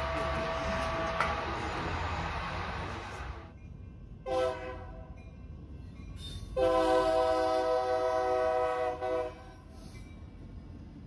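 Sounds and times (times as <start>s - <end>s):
locomotive air horn blasts: 0.0s - 1.5s, 4.2s - 5.0s, 6.6s - 9.7s.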